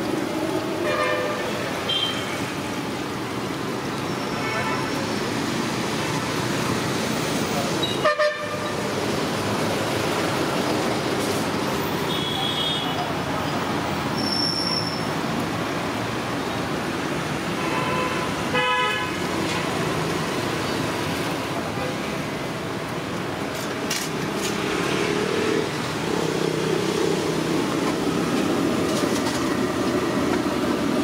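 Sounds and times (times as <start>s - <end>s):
vehicle horns tooting: 7.8s - 8.8s, 12.1s - 13.0s, 17.6s - 19.2s.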